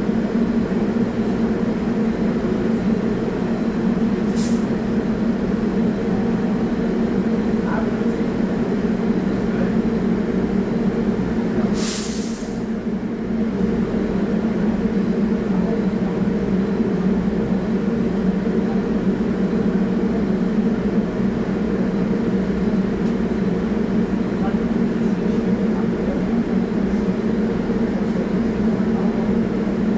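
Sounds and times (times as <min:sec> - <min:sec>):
subway train idling hum: 0:00.0 - 0:29.9
short hiss of air: 0:04.3 - 0:04.7, 0:11.8 - 0:12.8.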